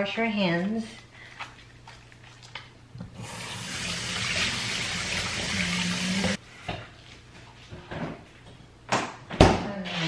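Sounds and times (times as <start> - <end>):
faucet running into steel sink: 3.1 - 6.4.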